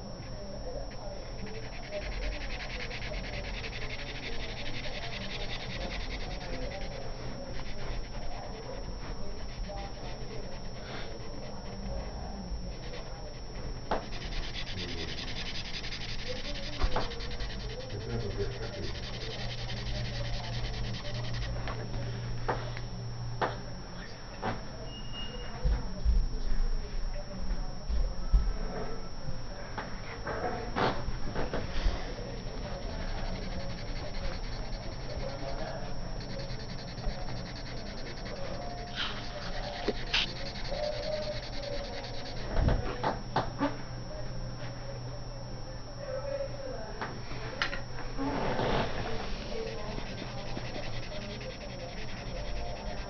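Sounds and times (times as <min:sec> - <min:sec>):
marker scratching on paper: 0:00.0 - 0:22.0, 0:31.4 - 0:43.0, 0:48.3 - 0:53.0
low hum: 0:47.4 - 0:53.0.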